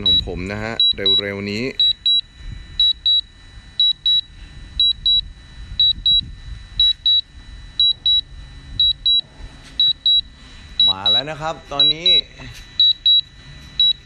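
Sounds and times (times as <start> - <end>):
high double warning beeps: 0.0 - 14.0.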